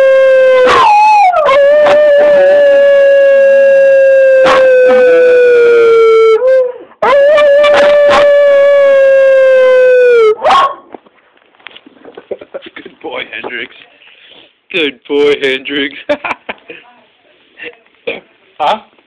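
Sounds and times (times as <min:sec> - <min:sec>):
small dog howling: 0:00.0 - 0:10.7.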